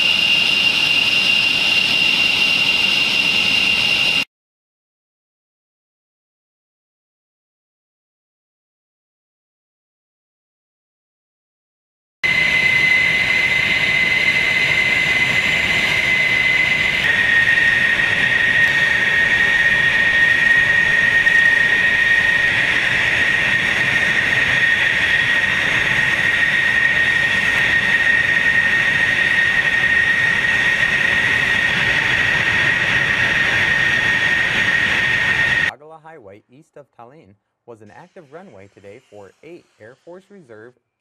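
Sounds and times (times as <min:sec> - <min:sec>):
jet engines whining: 0:00.0 - 0:04.3, 0:12.2 - 0:36.4, 0:37.7 - 0:40.8.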